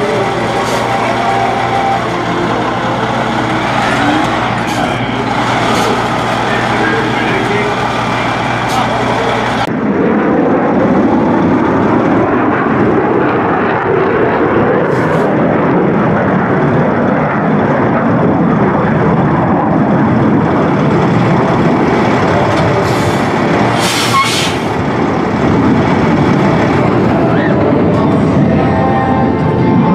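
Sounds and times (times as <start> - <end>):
diesel truck engine running: 0.0 - 29.9
air hisses: 23.8 - 24.7.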